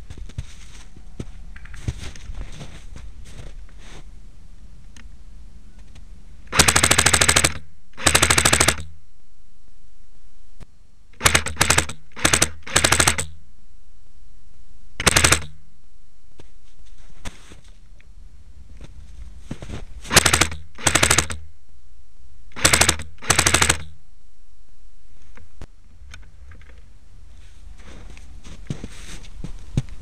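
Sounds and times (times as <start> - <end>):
airsoft gun firing bursts: 6.5 - 8.9, 11.2 - 13.4, 15.0 - 15.6, 20.1 - 21.4, 22.5 - 24.0.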